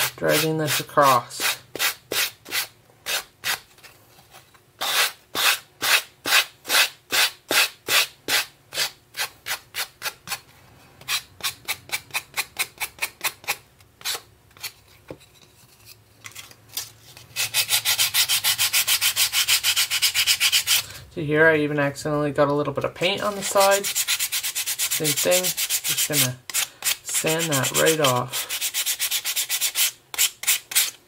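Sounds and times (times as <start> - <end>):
sanding block rasping on wood: 17.4 - 20.8, 23.2 - 30.9
sanding pad rubbing: 23.2 - 31.0.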